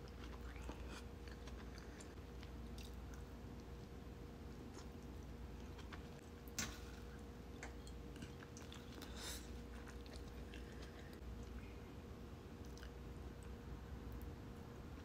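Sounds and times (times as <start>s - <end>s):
person chewing: 0.0s - 11.7s, 12.6s - 13.6s.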